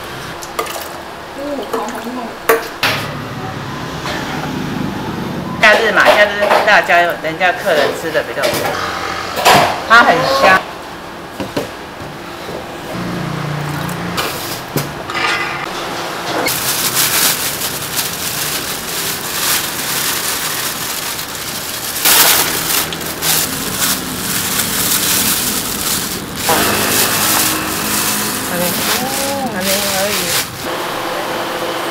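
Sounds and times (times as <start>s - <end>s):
crinkling sloshing hiss: 16.5s - 30.7s.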